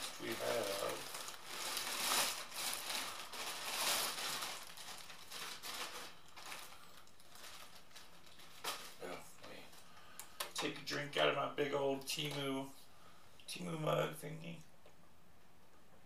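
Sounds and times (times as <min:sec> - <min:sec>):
packaging crinkling and rustling: 0:00.0 - 0:09.7.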